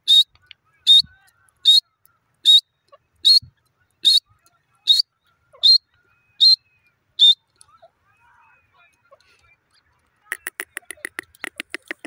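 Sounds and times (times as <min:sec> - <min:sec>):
francolin calling: 0:04.9 - 0:07.5.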